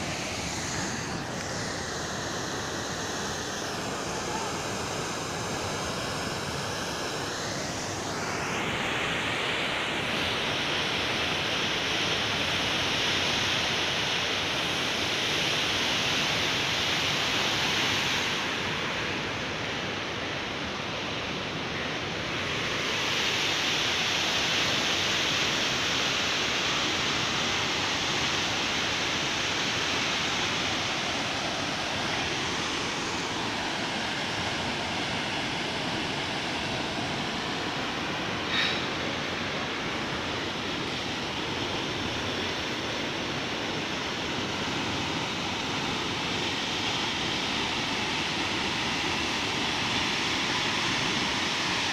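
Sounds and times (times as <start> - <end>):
rushing flooded river: 0.0 - 51.9.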